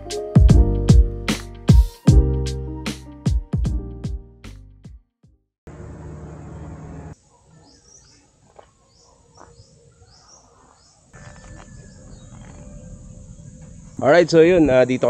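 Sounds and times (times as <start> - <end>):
birds chirping: 5.7 - 15.0.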